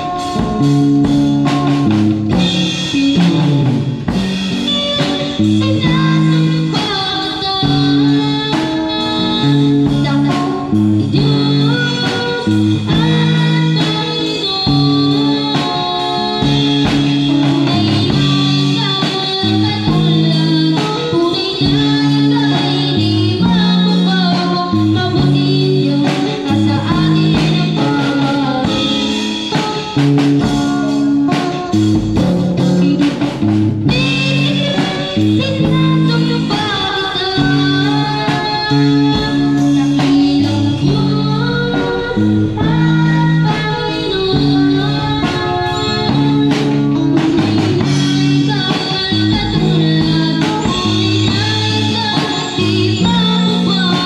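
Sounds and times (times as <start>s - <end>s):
drum kit beat: 0.0s - 54.0s
guitar: 0.0s - 54.0s
person singing: 4.5s - 33.2s, 33.8s - 54.0s
repeating bass line: 37.3s - 54.0s.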